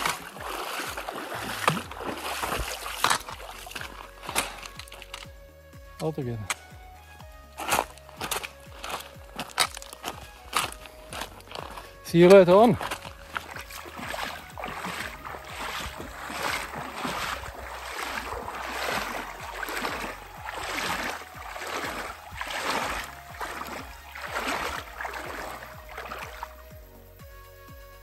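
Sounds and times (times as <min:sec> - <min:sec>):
water splashing from wading steps: 0:00.0 - 0:05.5, 0:06.4 - 0:26.8.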